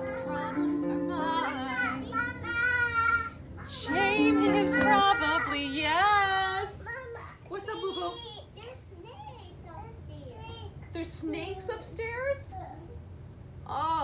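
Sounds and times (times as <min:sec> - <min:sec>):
recorded accompaniment chords: 0:00.0 - 0:05.5
toddler singing: 0:00.0 - 0:10.7.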